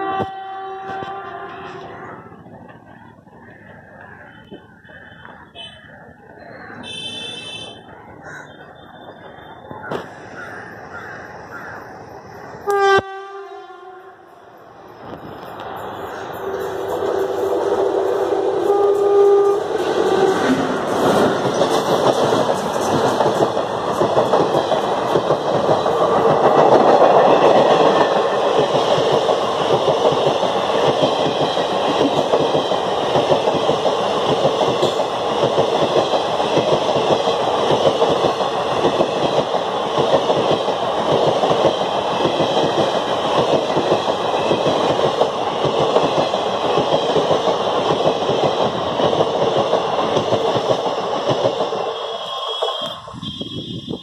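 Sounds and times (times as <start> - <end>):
freight train rumble: 0.0 - 54.0
steel wheels clattering over rails: 19.5 - 52.9.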